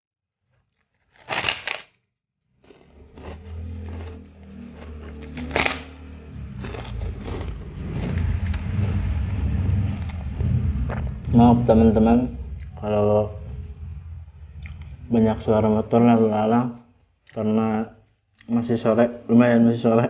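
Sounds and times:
crunching bites into cracker: 0:00.6 - 0:04.2, 0:04.8 - 0:06.0, 0:06.6 - 0:08.1
chewing crackle: 0:00.7 - 0:09.0
motorbikes passing: 0:02.8 - 0:16.8.

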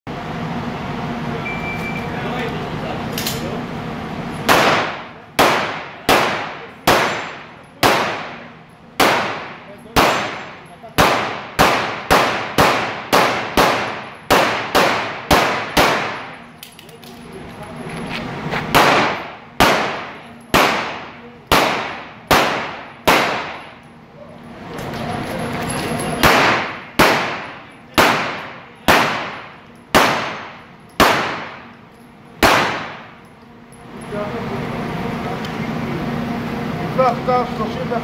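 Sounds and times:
pistol shots echoing: 0:04.5 - 0:16.4, 0:18.7 - 0:23.8, 0:26.2 - 0:31.7, 0:32.4 - 0:33.2.

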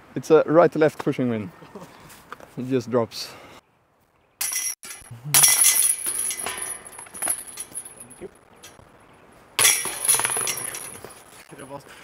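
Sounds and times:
metal chains jingling: 0:04.4 - 0:08.3, 0:09.6 - 0:11.4.

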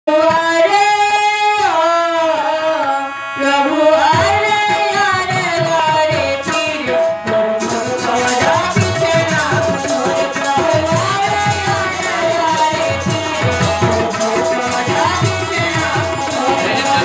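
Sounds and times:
woman singing: 0:00.1 - 0:17.0
hand drums: 0:04.2 - 0:17.0
jingling metal percussion: 0:06.2 - 0:17.0.

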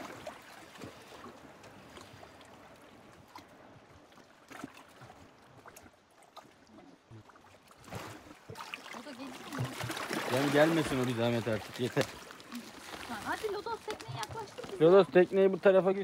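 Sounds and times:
sea water lapping: 0:00.0 - 0:16.0.

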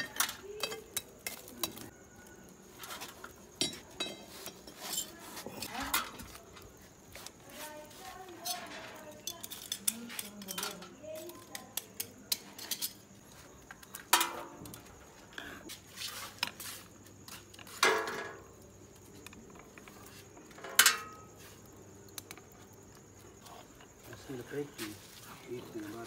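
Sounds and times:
metal skewers clinking and scraping: 0:00.0 - 0:02.0, 0:02.7 - 0:06.6, 0:07.2 - 0:16.6, 0:19.3 - 0:21.5.

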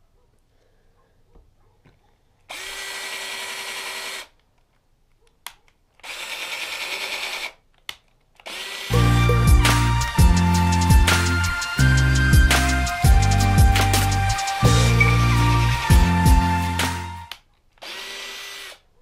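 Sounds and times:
power drill whirring: 0:02.5 - 0:04.4, 0:06.0 - 0:07.6, 0:08.4 - 0:18.9
loud background music: 0:08.9 - 0:17.3.

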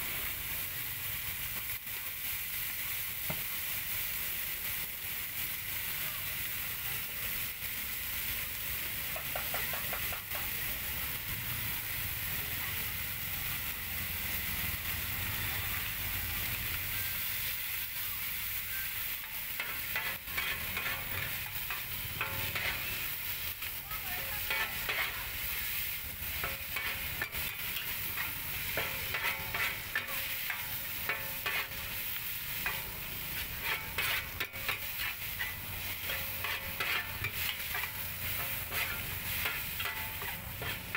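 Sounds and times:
noodles sizzling in a wok: 0:00.0 - 0:40.9
metal spatula scraping wok: 0:18.5 - 0:40.9.

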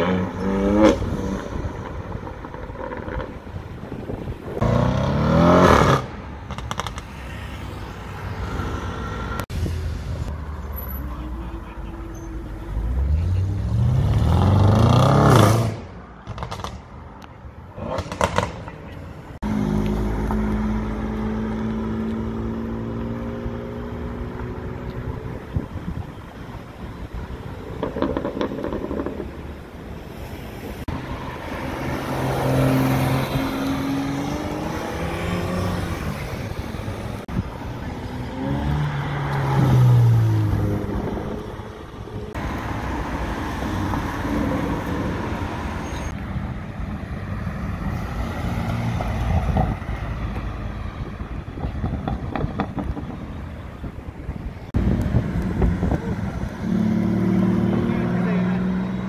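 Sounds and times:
cars accelerating loudly: 0:00.0 - 0:03.3, 0:04.6 - 0:07.7, 0:12.7 - 0:16.5, 0:19.4 - 0:25.1, 0:30.8 - 0:41.7, 0:54.7 - 0:59.0.

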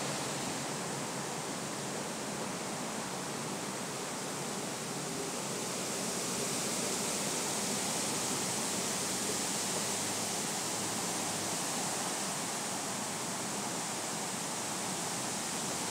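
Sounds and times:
wind rustling leaves: 0:00.0 - 0:15.9.

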